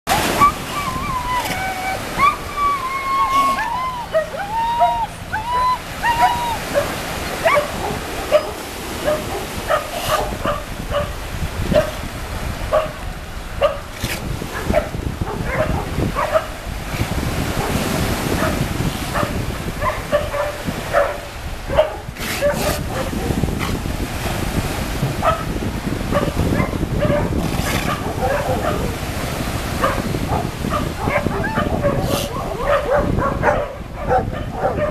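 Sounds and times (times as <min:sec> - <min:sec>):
dog whining: 0:00.1 - 0:10.6, 0:21.8 - 0:23.8, 0:31.0 - 0:34.9
dogs barking: 0:00.1 - 0:12.0, 0:12.7 - 0:13.0, 0:13.6 - 0:16.6, 0:17.5 - 0:23.9, 0:25.2 - 0:34.9
surf breaking on shore: 0:00.1 - 0:34.9.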